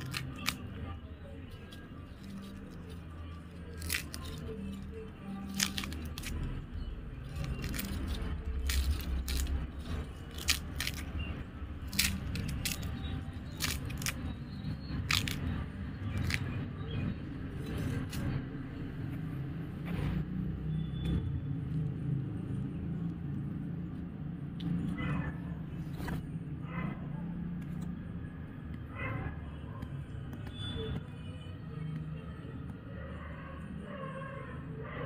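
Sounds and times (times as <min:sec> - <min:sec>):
twine and casing crackling: 0:00.0 - 0:18.5.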